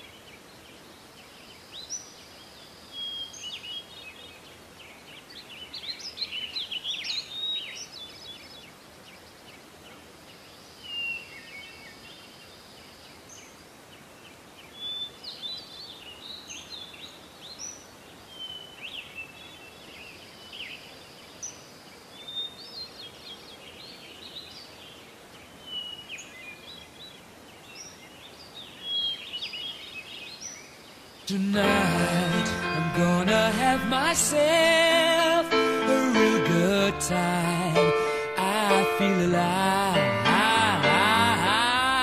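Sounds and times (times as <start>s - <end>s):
faint outdoor background hiss: 0.0s - 42.0s
birds chirping: 31.2s - 42.0s.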